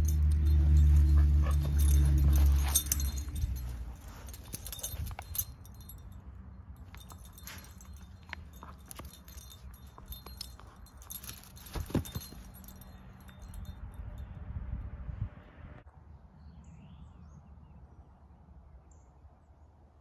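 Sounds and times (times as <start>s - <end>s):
dog shaking rope toy: 0.0s - 6.0s, 6.9s - 13.5s
metallic jingling: 0.0s - 14.2s.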